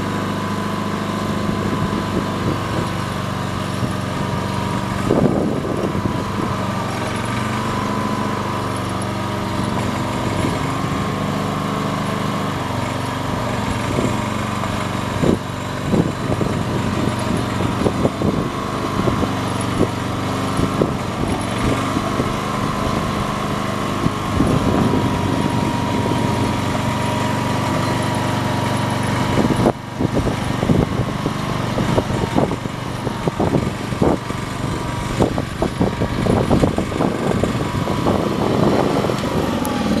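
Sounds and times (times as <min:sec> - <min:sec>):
small engine running: 0:00.0 - 0:40.0
steady whine: 0:12.8 - 0:40.0.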